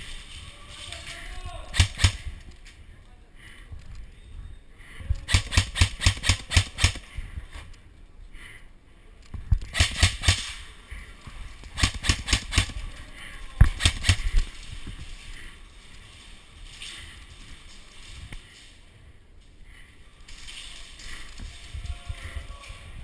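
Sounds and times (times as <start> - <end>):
airsoft rifle shots: 1.7 - 2.4, 5.2 - 7.1, 9.7 - 10.7, 11.7 - 12.8, 13.7 - 14.5.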